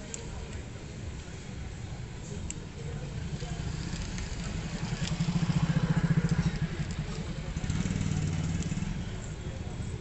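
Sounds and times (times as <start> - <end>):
motorcycle engine idling: 2.8 - 10.0.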